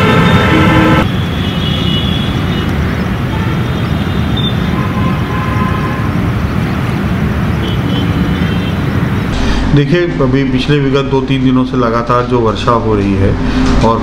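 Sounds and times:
low outdoor rumble: 0:09.2 - 0:14.0.

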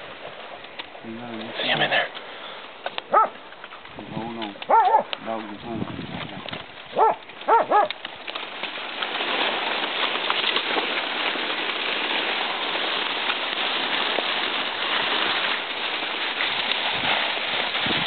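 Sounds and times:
dog barking: 0:03.1 - 0:03.4, 0:04.7 - 0:05.1, 0:06.9 - 0:07.9.

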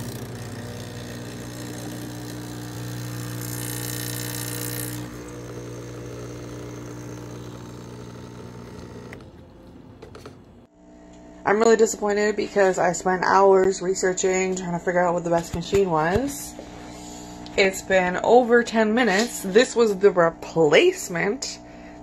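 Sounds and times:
espresso machine hiss: 0:00.0 - 0:09.2
espresso machine pump humming: 0:00.0 - 0:11.3.

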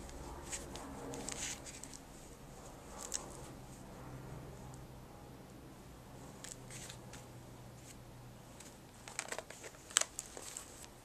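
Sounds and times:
crinkles and clicks: 0:00.0 - 0:02.1, 0:02.9 - 0:03.5, 0:08.6 - 0:11.0
faint low hum: 0:00.0 - 0:11.0
paper rustling: 0:00.1 - 0:02.1, 0:06.4 - 0:08.0, 0:08.6 - 0:11.0.

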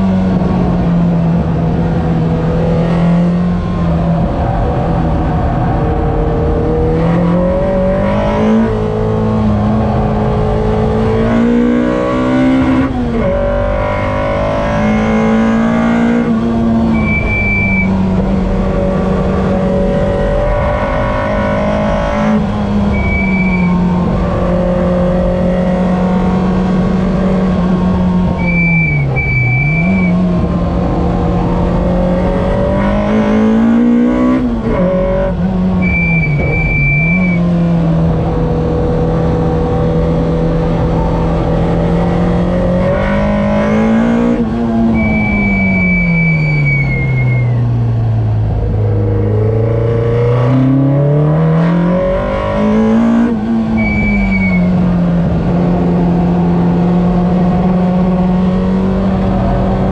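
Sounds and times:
car engine at full throttle: 0:00.0 - 0:59.9
tyre squeals: 0:16.8 - 0:18.2, 0:20.1 - 0:25.8, 0:28.3 - 0:30.3, 0:35.1 - 0:37.8, 0:43.0 - 0:47.8, 0:52.8 - 0:54.9.

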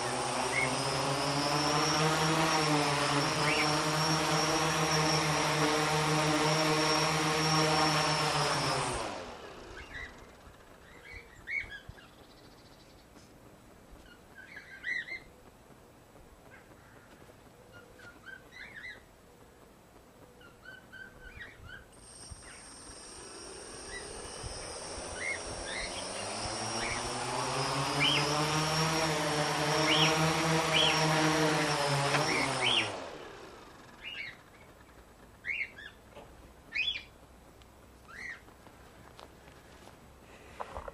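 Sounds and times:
birds chirping: 0:00.0 - 0:01.0, 0:03.0 - 0:05.6, 0:09.4 - 0:28.9, 0:29.6 - 0:37.4, 0:38.0 - 0:38.6
drone motors and propellers: 0:00.0 - 0:12.4, 0:21.1 - 0:35.9
high whine: 0:21.9 - 0:34.6.

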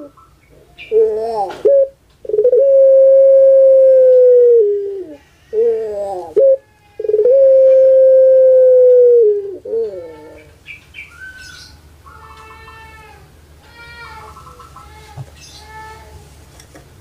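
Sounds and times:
dove long call: 0:00.0 - 0:10.5
high-pitched bird calls: 0:10.2 - 0:12.9.

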